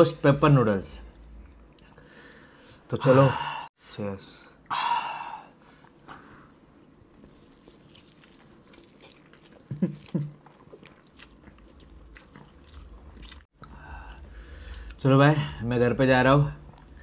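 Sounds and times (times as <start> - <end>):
wet chewing and slurping: 7.0 - 15.0.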